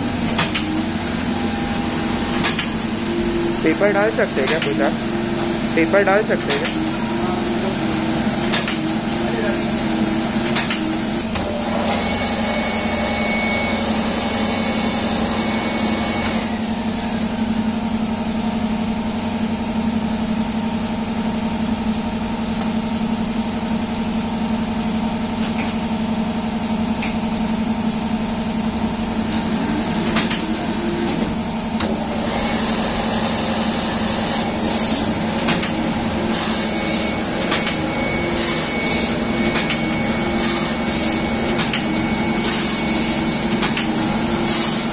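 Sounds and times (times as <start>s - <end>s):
printing press motor hum: 0.0s - 44.9s
hiss: 42.4s - 44.9s.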